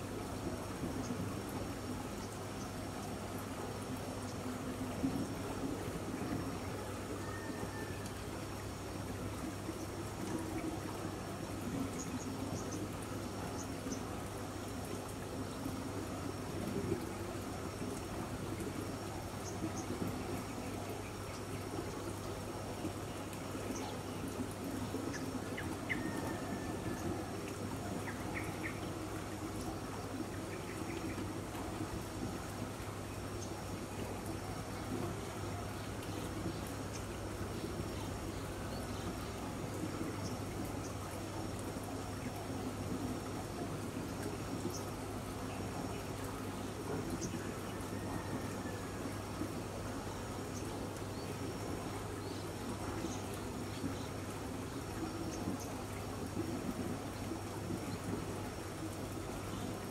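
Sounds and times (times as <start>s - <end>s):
pool water trickling: 0.0s - 59.9s.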